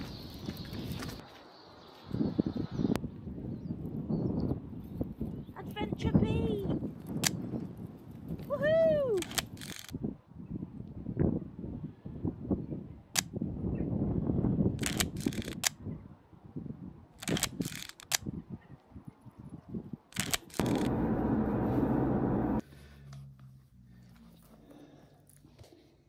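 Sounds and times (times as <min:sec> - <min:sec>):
wind rumbling on microphone: 0:02.0 - 0:22.6
camera shutter clicks: 0:09.2 - 0:09.9, 0:14.8 - 0:15.8, 0:17.2 - 0:18.2, 0:20.2 - 0:20.9
steady rushing noise: 0:20.2 - 0:22.6.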